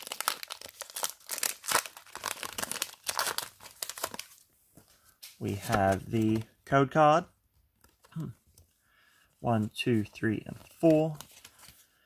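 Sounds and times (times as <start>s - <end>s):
foil wrapper crinkling and tearing: 0.0s - 4.4s.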